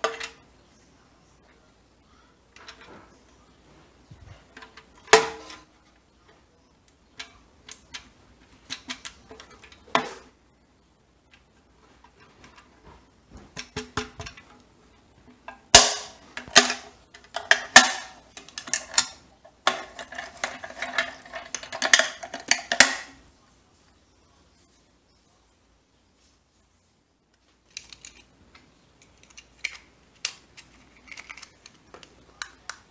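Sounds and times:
drink can crinkling as crushed: 15.5s - 23.2s, 29.2s - 32.9s.

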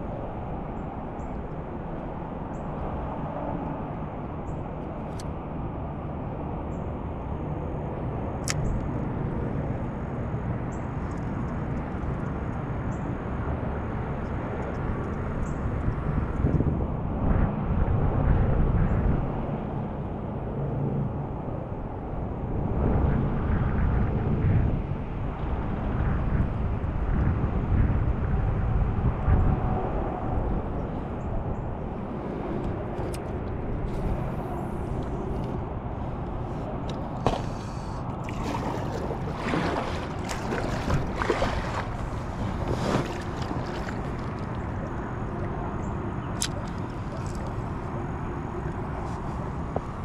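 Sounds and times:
wind rumbling on microphone: 0.0s - 50.0s
water sloshing: 36.4s - 45.5s, 46.4s - 47.8s.

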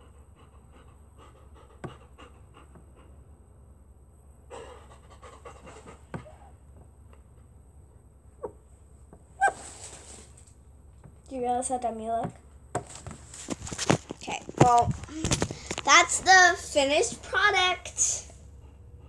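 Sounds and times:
dog panting softly: 0.0s - 3.3s, 4.5s - 6.4s.

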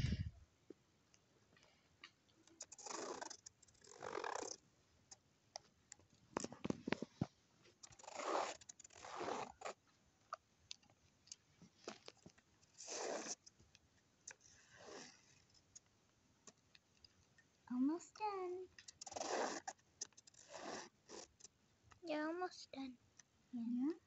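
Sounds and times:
felt-tip pen scratching on paper: 2.4s - 4.6s, 7.7s - 9.8s, 12.6s - 13.5s, 18.8s - 21.5s
small plastic clicks: 18.8s - 20.6s.

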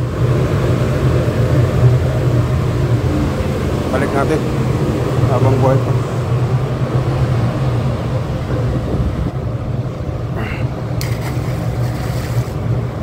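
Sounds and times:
ship machinery drone: 0.0s - 13.0s
fish splashing into water: 11.0s - 12.7s.

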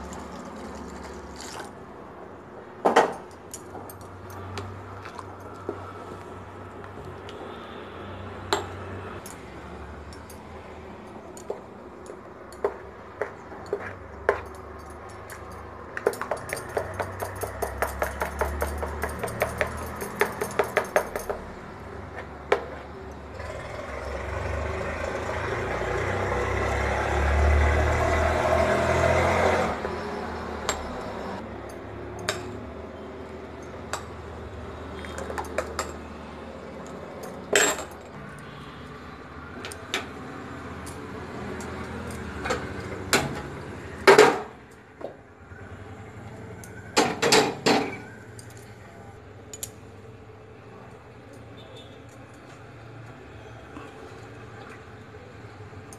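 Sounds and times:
spoon clinking against steel bowl: 15.2s - 21.4s.

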